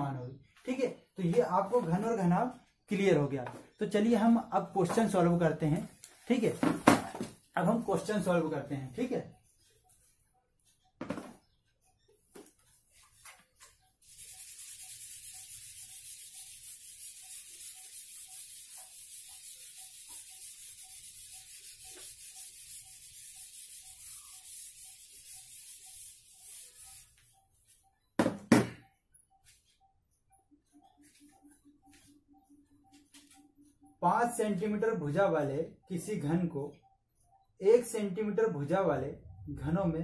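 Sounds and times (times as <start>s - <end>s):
eraser scrubbing whiteboard: 12.6s - 27.8s.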